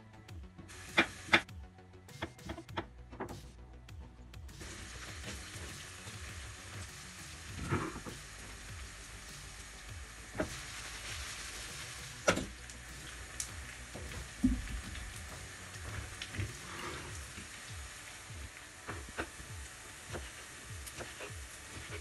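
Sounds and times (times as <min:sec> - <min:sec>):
vegetables sizzling in oil: 0:00.7 - 0:01.4, 0:04.6 - 0:22.0.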